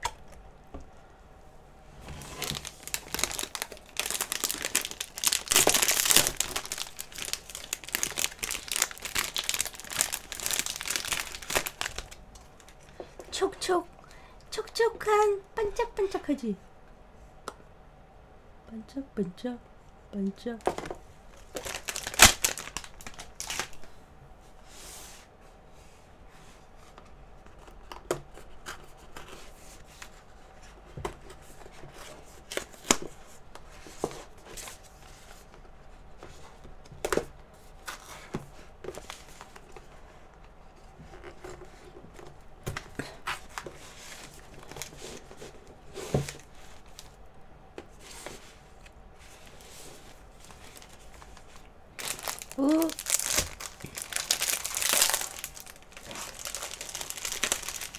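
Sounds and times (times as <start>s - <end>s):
paper rustling and crinkling: 2.0s - 12.8s, 21.4s - 23.9s, 26.8s - 47.1s, 47.8s - 57.9s.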